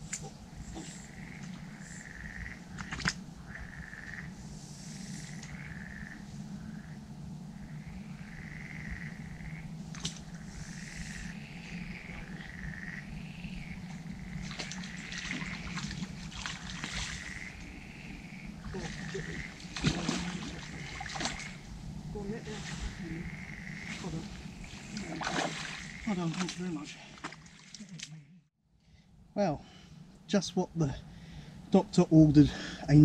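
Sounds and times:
frogs croaking: 0:00.0 - 0:28.5
low steady hum: 0:00.0 - 0:33.0
water splashes and knocks: 0:14.4 - 0:17.4, 0:18.7 - 0:21.6, 0:24.9 - 0:28.1.

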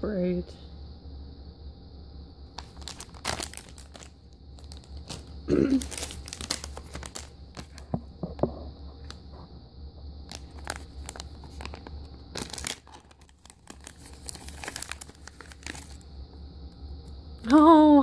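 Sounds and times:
foil packet crinkling and tearing: 0:02.6 - 0:07.9, 0:10.3 - 0:16.0.

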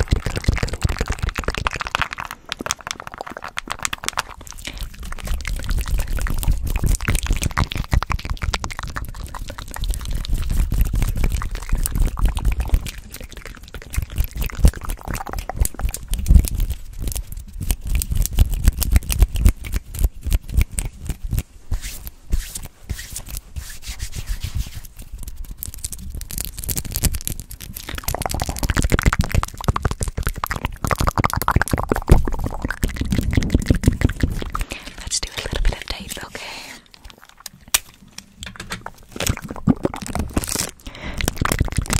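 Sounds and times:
wet mouth clicks and smacks: 0:00.0 - 0:21.5, 0:24.9 - 0:41.9.

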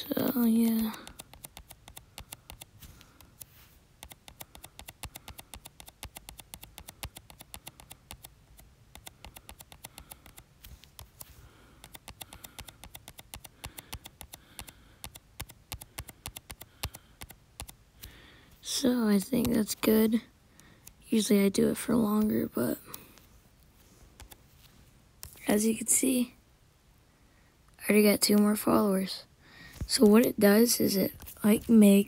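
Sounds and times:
fingertip tapping touchscreen: 0:00.6 - 0:18.2, 0:18.8 - 0:20.0, 0:24.2 - 0:24.4, 0:25.2 - 0:25.4.

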